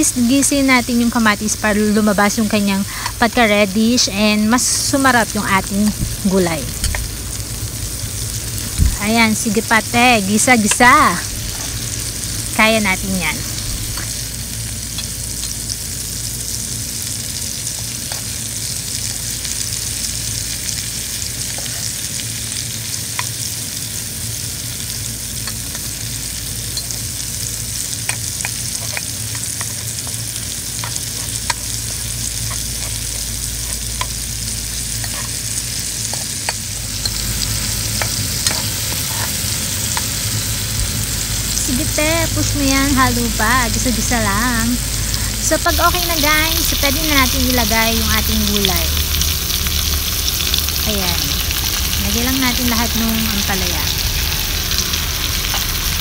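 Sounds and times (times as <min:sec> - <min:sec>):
food sizzling in hot oil: 0:00.0 - 0:56.0
spatula scraping a pan: 0:34.9 - 0:35.4, 0:38.1 - 0:39.4.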